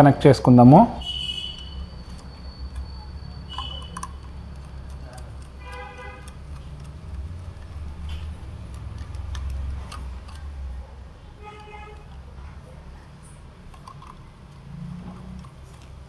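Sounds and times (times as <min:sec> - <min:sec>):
screwdriver clicks and scrapes: 0:02.0 - 0:10.6.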